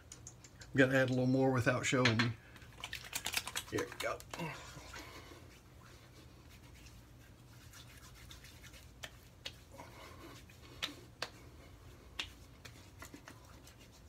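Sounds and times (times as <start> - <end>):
rubbing of wet skin: 2.6 - 14.0
hands slapping face: 8.6 - 9.6, 10.6 - 13.4.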